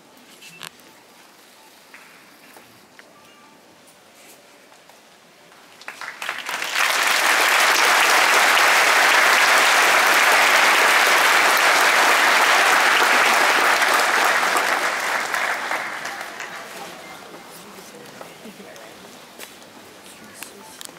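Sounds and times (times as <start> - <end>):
arena crowd applauding: 5.7 - 17.3.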